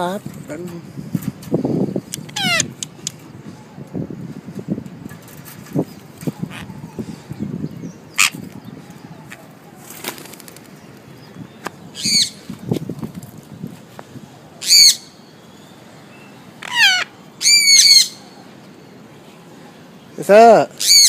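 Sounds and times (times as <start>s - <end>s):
parrot calls falling in pitch: 2.4s - 2.7s, 16.6s - 18.1s
parrot wingbeats flapping: 9.9s - 10.8s.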